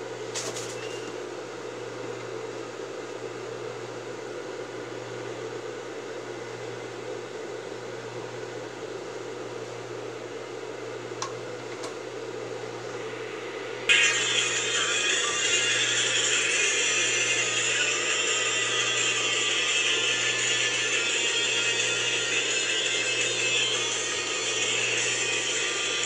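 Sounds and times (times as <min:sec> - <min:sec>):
mechanical hum with hiss: 0:00.0 - 0:26.0
music: 0:13.9 - 0:26.0.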